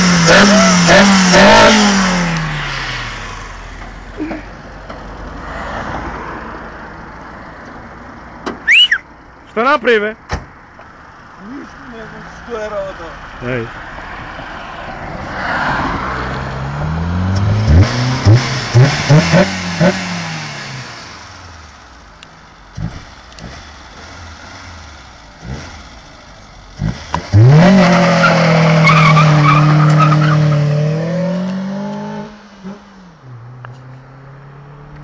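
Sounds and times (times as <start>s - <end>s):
car engine revving: 0.0s - 4.2s, 15.2s - 35.0s.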